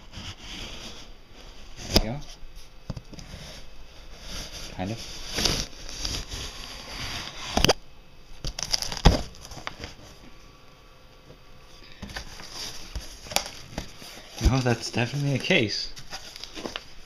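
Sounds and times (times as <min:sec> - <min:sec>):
cardboard flaps knocking and rustling: 0:08.5 - 0:10.0, 0:12.0 - 0:15.4.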